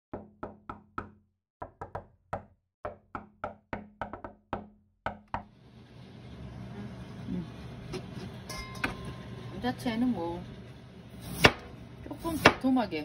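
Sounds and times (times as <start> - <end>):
kitchen room noise: 5.3 - 13.0.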